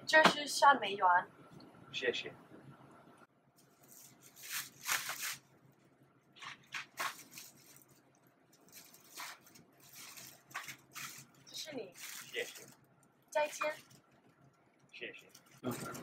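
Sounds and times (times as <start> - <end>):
plastic bag rustling: 3.6 - 5.5, 6.4 - 14.5.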